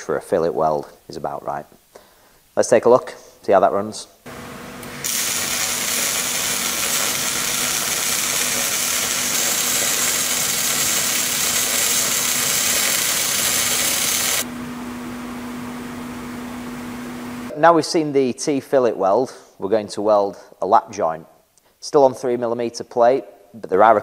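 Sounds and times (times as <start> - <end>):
welding arc crackling: 4.3 - 14.5
steady low hum: 4.3 - 17.6.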